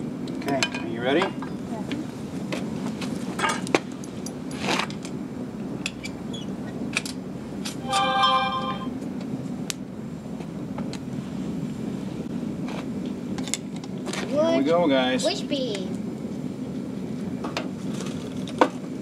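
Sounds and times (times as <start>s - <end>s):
steady pitched tone: 7.8s - 9.0s.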